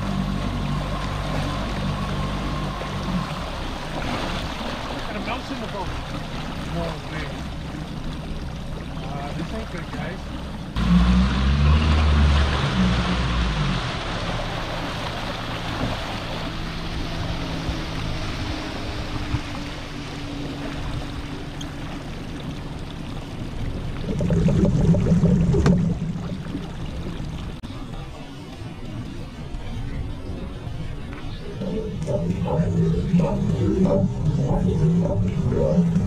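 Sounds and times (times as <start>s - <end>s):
wind and water rushing around boat: 0.0s - 36.0s
rumbling and rustling: 31.2s - 36.0s.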